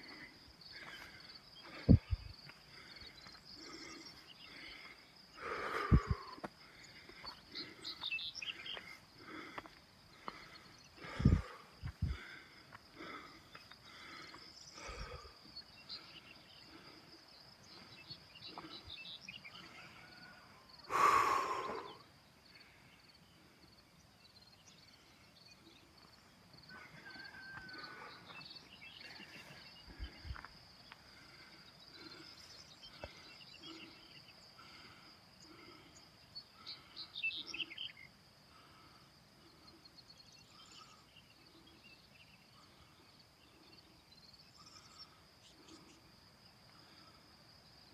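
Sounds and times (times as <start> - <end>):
bird calls: 0.0 - 46.1
high insect trill: 0.0 - 47.9.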